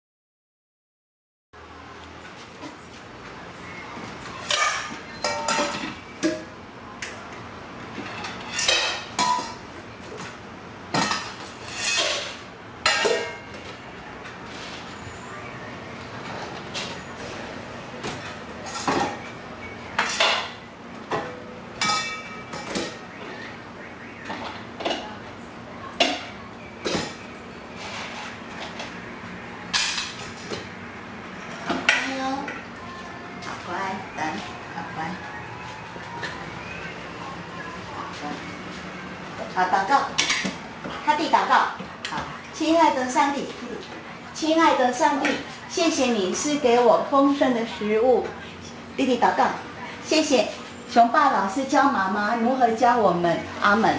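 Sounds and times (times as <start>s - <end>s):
bowls and dishes clanking: 4.4s - 6.5s, 8.0s - 9.6s, 10.9s - 13.7s, 20.0s - 23.0s.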